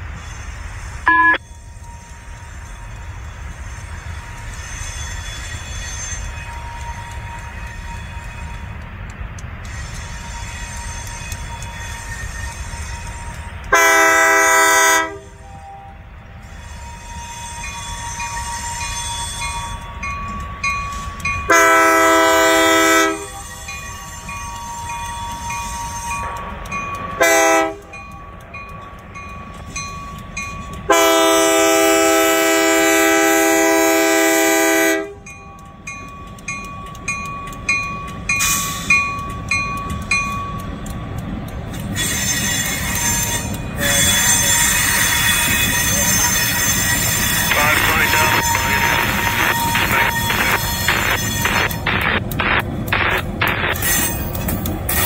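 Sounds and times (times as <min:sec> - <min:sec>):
locomotive engine rumbling: 0:00.0 - 0:55.0
locomotive horn blasts: 0:01.1 - 0:01.4, 0:09.7 - 0:19.4, 0:21.5 - 0:25.1, 0:27.2 - 0:28.0, 0:30.9 - 0:35.3, 0:42.0 - 0:52.0.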